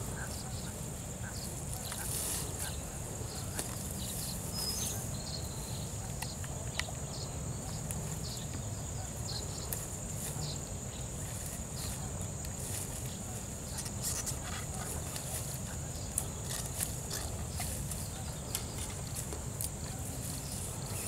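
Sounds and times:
bird chirps: 0.1s - 11.1s.

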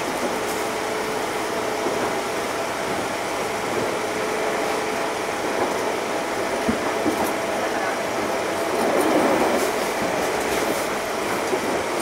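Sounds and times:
train rumble and hiss: 0.0s - 12.0s.

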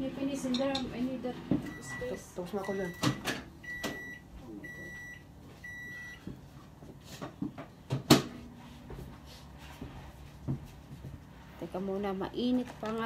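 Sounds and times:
microwave oven beeping: 1.6s - 6.5s.

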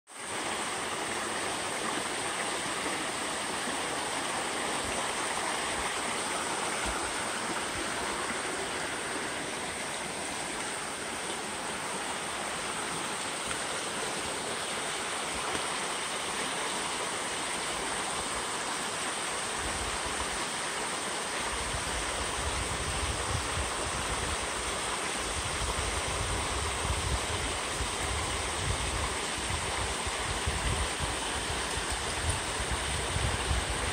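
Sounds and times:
brook rushing over stones: 0.3s - 16.4s.

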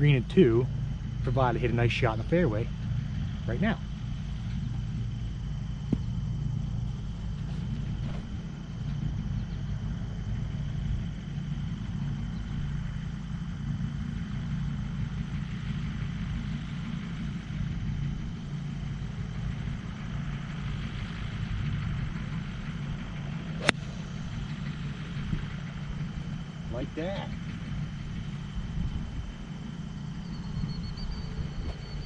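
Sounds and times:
steady low rumble: 0.0s - 32.0s
golf club striking ball: 5.8s - 6.2s, 23.6s - 24.7s.

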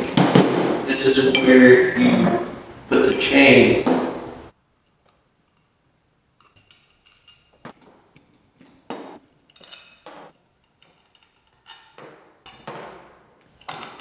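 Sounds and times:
light metallic clinks and taps: 9.4s - 12.6s.

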